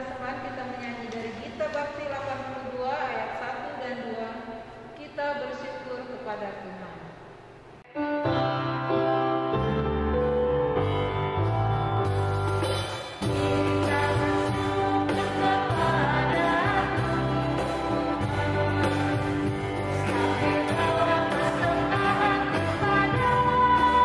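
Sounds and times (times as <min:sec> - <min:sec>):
keyboard: 0:07.9 - 0:24.0
acoustic guitar: 0:08.3 - 0:24.0
electric bass: 0:08.4 - 0:24.0
people singing together: 0:13.5 - 0:24.0.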